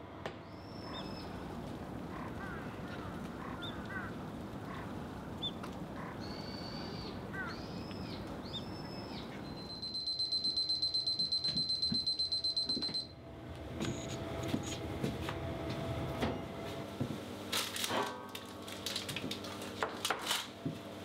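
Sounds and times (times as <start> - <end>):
steady outdoor hiss: 0.0 - 10.8
birds chirping: 0.4 - 10.0
oven timer beeping: 9.5 - 13.2, 13.8 - 14.2.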